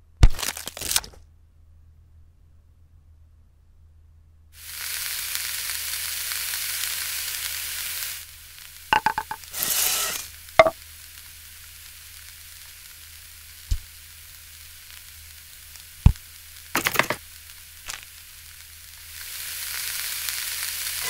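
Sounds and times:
short hiss: 4.6 - 12.9
food sizzling on griddle: 4.6 - 21.0.

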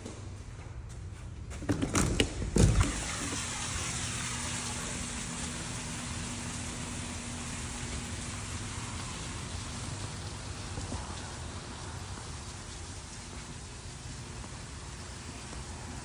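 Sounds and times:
glass door opening: 1.7 - 3.5
steady outdoor hiss: 2.4 - 16.0.

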